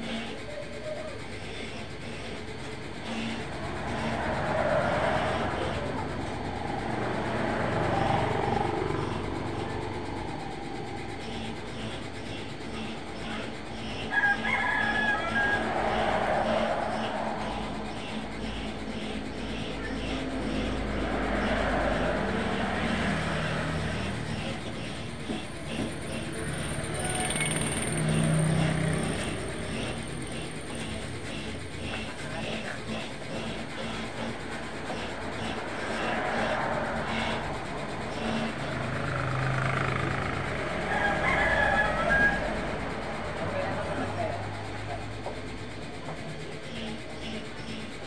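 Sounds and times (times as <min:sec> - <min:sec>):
road traffic passing: 0:00.0 - 0:48.0
large truck passing: 0:01.2 - 0:48.0
steady low rumble: 0:01.8 - 0:14.0, 0:15.2 - 0:27.0
van driving past: 0:02.4 - 0:13.8, 0:15.1 - 0:32.2, 0:33.7 - 0:46.1.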